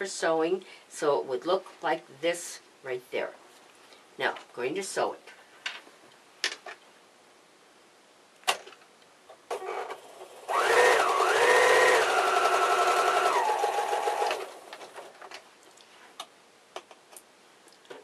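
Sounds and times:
electric sewing machine stitching: 9.5s - 14.9s.

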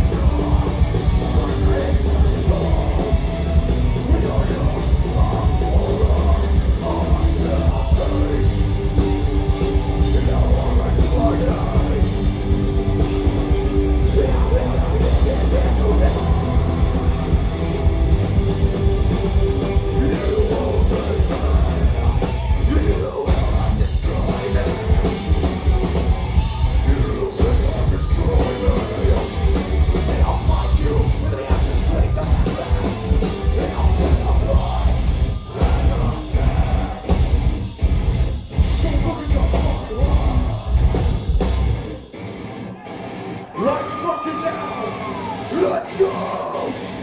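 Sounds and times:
metalcore band playing live: 0.0s - 47.0s
screamed vocal: 42.6s - 47.0s.

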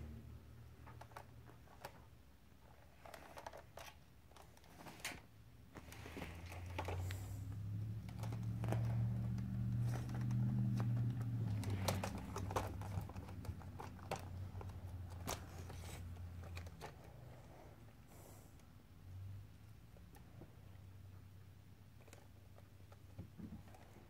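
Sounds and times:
kitten scratching on carpet: 5.7s - 17.6s.

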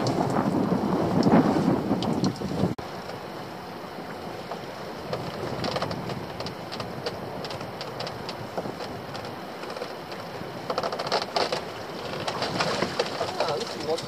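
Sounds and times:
sea noise: 0.0s - 14.0s
wind: 0.0s - 14.0s
rope and pot clicks and knocks: 5.1s - 14.0s.

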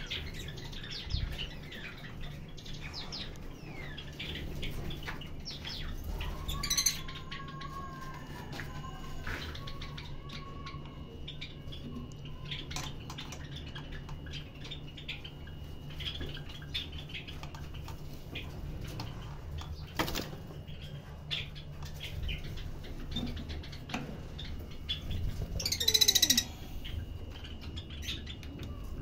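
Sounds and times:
faint bird chirps: 20.6s - 29.0s.

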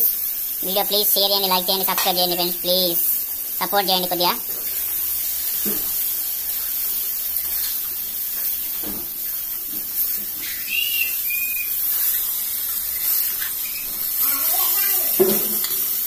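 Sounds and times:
pot hissing on gas stove: 0.0s - 16.0s
short high whistles: 10.4s - 11.9s.

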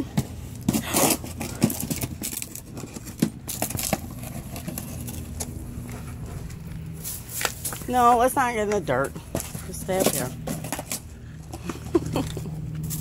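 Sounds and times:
low hum: 0.0s - 13.0s
dog tearing cardboard box: 0.6s - 6.4s, 9.3s - 11.1s.

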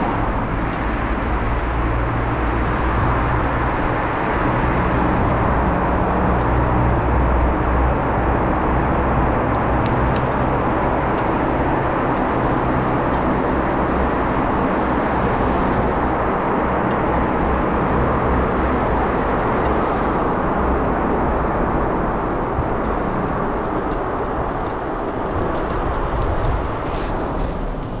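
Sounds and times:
wind and rolling noise: 0.0s - 28.0s.

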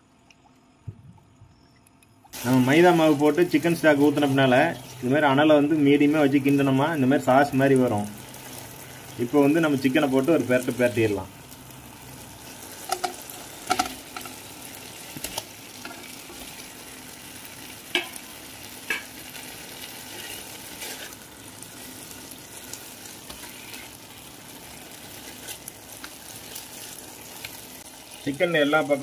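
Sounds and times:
sauce sizzling in a pan: 2.3s - 29.0s
spatula stirring and scraping: 18.8s - 28.3s.

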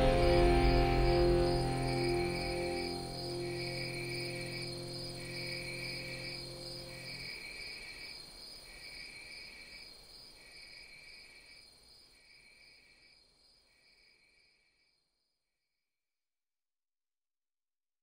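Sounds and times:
held low chord: 0.0s - 7.3s
faint steady high tone: 0.0s - 7.4s
high cricket-like chirp: 0.0s - 15.2s.

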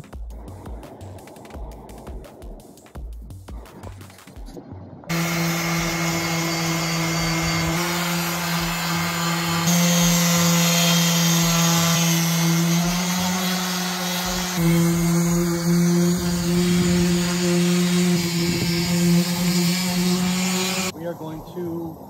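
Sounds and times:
orbital sander on fiberglass: 5.1s - 20.9s.

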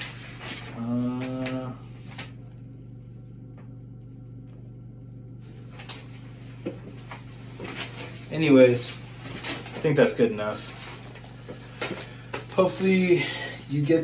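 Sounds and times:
low electrical hum: 0.0s - 14.0s
person humming: 0.7s - 2.0s.

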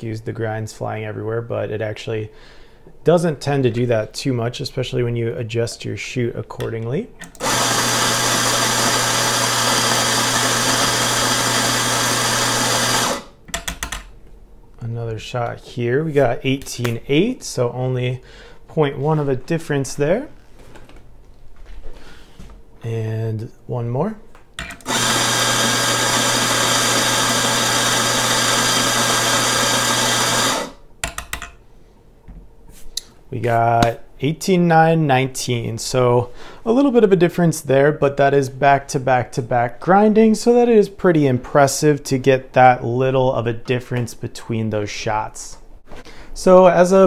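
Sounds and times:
coffee grinder whirring: 7.4s - 13.4s, 24.7s - 30.8s.

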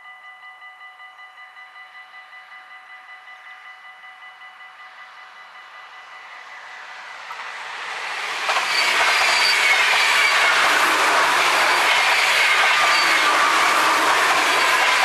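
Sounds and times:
train passing at speed: 2.7s - 15.0s
high squealing ring: 8.6s - 10.5s, 12.6s - 13.3s.

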